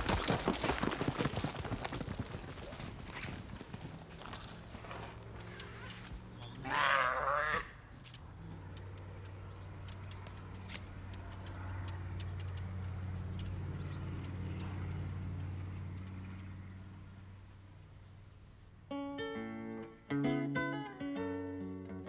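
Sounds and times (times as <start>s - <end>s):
calf bawling: 4.7s - 7.9s
faint clicks: 8.0s - 14.8s.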